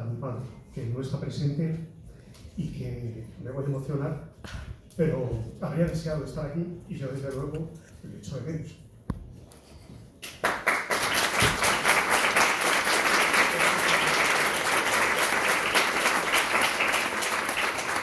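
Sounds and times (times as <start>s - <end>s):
audience clapping: 10.2s - 18.0s.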